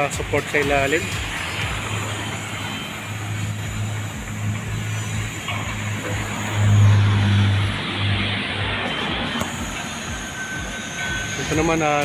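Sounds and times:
car passing close: 0:00.0 - 0:12.0
road traffic hum and tyre noise: 0:00.0 - 0:12.0.

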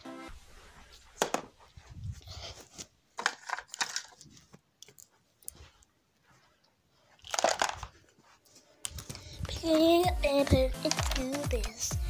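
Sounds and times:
small hard objects clattering: 0:03.2 - 0:04.5, 0:07.2 - 0:08.0.

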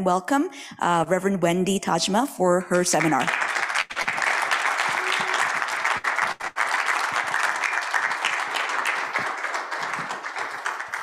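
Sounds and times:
audience applauding: 0:03.0 - 0:11.0.

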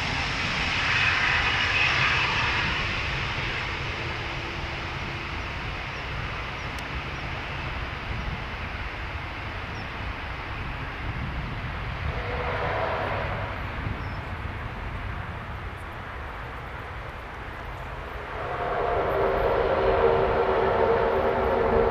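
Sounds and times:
turboprop propeller drone: 0:00.0 - 0:21.9
low rumble: 0:11.9 - 0:21.9.

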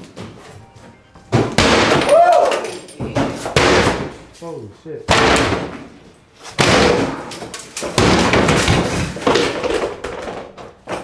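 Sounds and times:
heavy tool smashing wooden cabinets: 0:05.1 - 0:05.9, 0:06.5 - 0:11.0.

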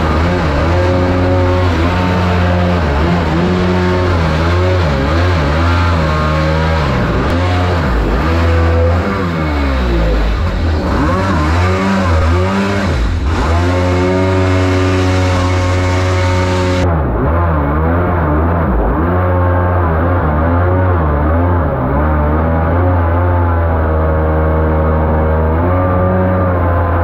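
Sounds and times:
jet boat engine running hard: 0:00.0 - 0:16.8.

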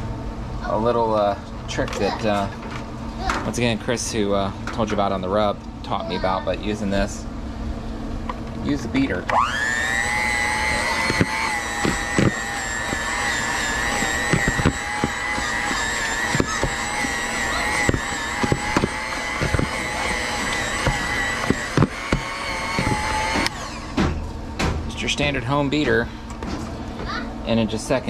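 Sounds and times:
electric mixer whining: 0:09.2 - 0:24.0.

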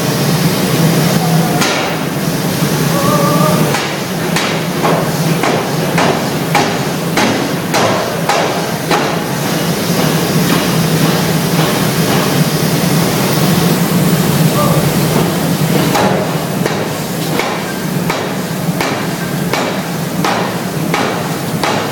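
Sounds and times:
steam hammer pounding steel: 0:00.0 - 0:21.9.

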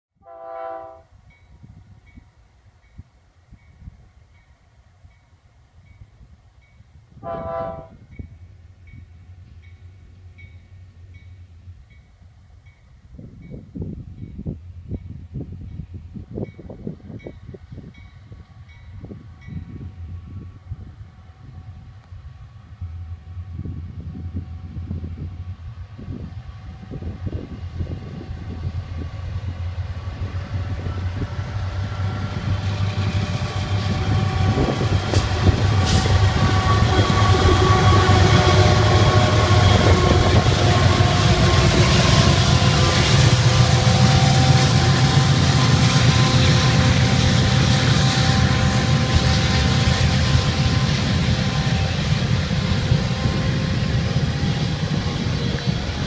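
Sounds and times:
diesel locomotives rumbling: 0:00.2 - 0:56.0
train wheels rolling on rails: 0:25.9 - 0:56.0.

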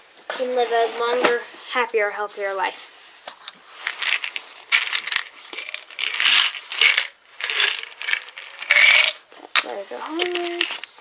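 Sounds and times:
bags rustling and crinkling: 0:03.6 - 0:11.0.

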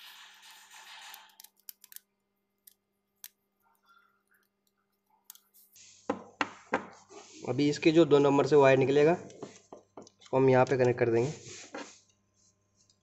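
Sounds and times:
screwdriver scraping: 0:00.0 - 0:02.0.

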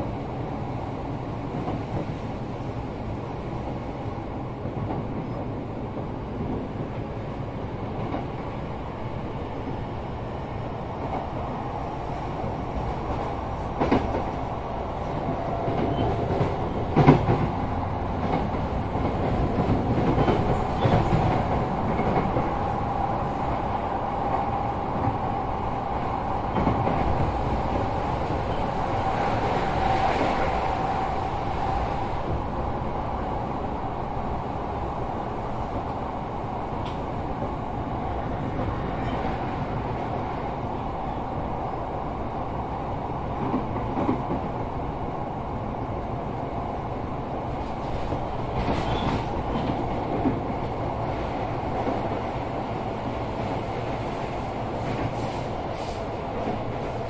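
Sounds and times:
train wheel and rail noise: 0:00.0 - 0:57.0.

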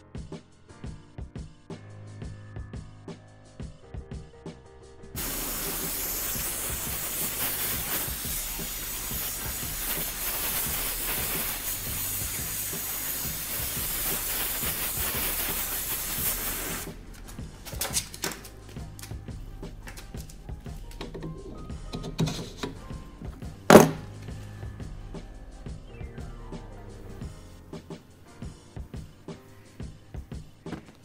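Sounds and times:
gas torch flame hissing: 0:05.2 - 0:31.0
sharp knocks: 0:23.6 - 0:24.1.

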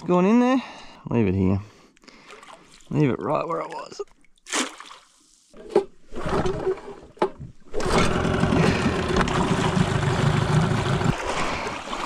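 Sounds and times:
outboard motor running: 0:07.7 - 0:11.9.

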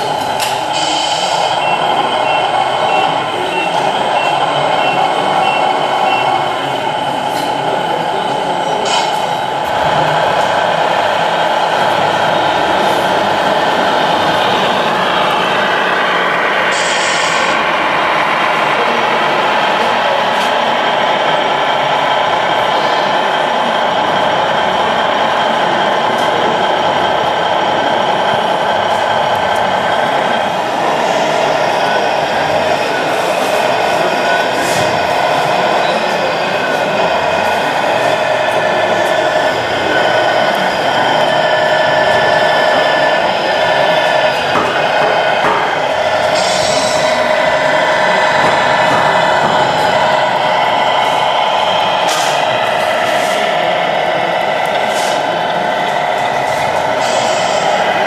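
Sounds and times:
reversing warning beeps: 0:00.8 - 0:06.5.

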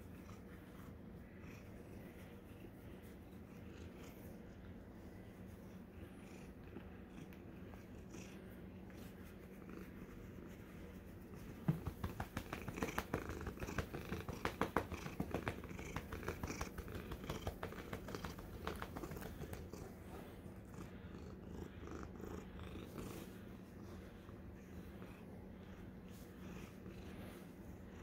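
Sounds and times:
cat purring: 0:00.0 - 0:28.0
hand rubbing fur on microphone: 0:08.9 - 0:20.3.

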